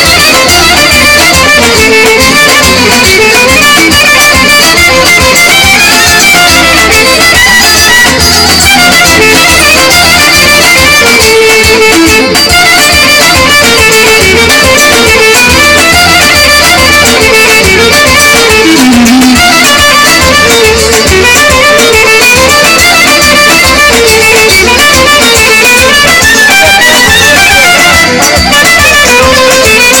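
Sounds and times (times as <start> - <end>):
live dance band through speakers: 0.0 - 30.0.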